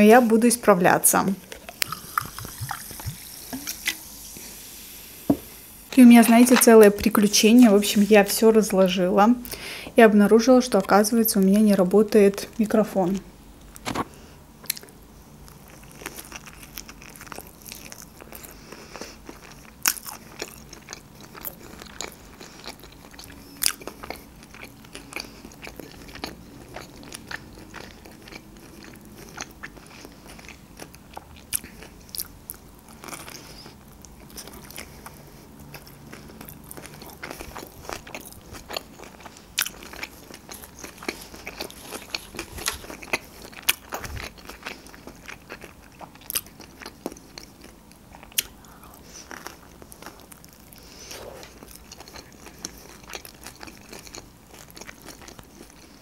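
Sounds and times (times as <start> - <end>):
person chewing crunchy food: 1.4 - 6.8, 13.7 - 56.0.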